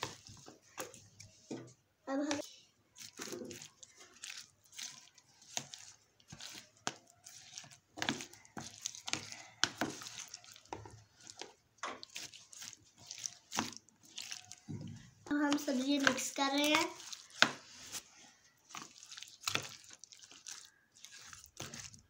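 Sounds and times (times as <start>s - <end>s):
spoon stirring sticky batter: 0.0s - 22.0s.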